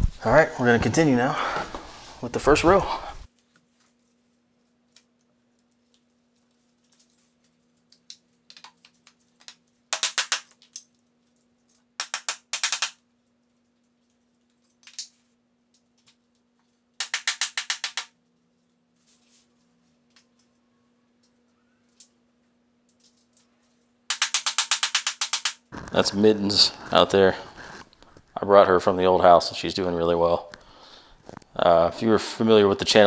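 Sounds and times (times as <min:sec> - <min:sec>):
steady low hum: 0:25.6 - 0:32.9.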